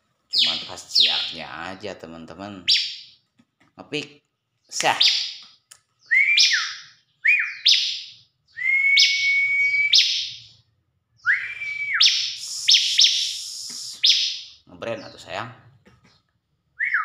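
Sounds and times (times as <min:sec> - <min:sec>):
bird singing whistled notes: 0:00.3 - 0:01.4, 0:02.7 - 0:03.2, 0:05.0 - 0:05.4, 0:06.0 - 0:10.6, 0:11.2 - 0:15.2, 0:16.8 - 0:17.0
sharp upward-sweeping chirps: 0:12.0 - 0:14.6.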